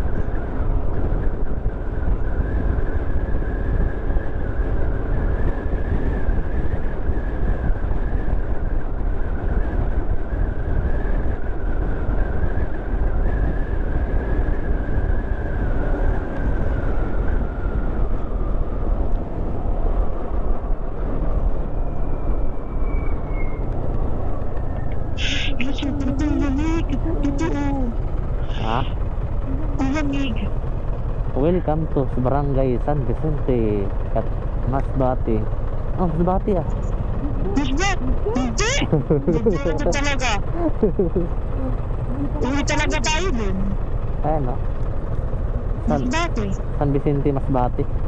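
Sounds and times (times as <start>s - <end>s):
wind and road noise: 0.0s - 48.0s
motorcycle engine running: 23.8s - 48.0s.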